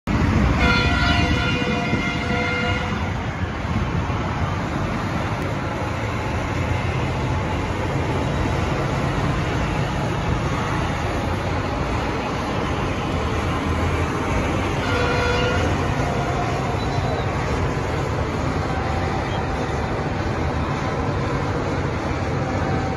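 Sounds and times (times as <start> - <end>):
rumble of vehicles driving: 0.0 - 22.9
horn-like tone: 0.6 - 3.2, 14.8 - 17.2.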